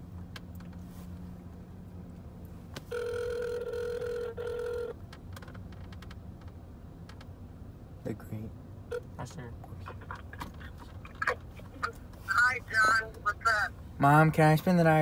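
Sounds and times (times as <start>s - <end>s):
telephone ringback tone: 2.9s - 4.9s.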